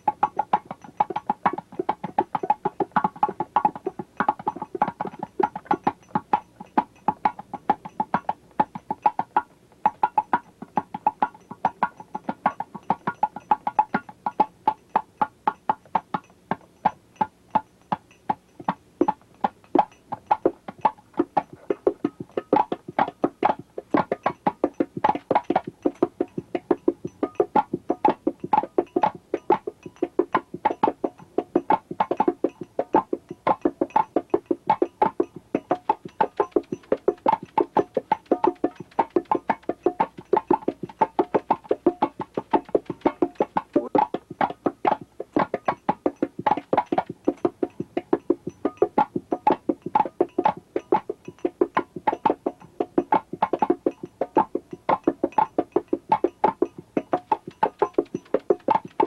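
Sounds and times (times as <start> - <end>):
percussive instrumental music: 0.0 - 16.3, 18.3 - 59.0.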